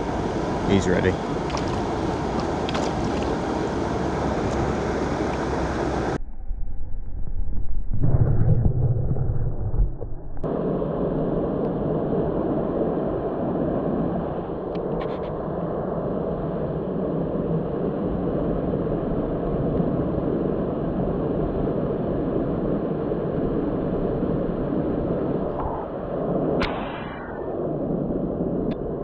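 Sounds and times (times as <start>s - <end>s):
muffled outdoor rushing noise: 0.0s - 6.2s.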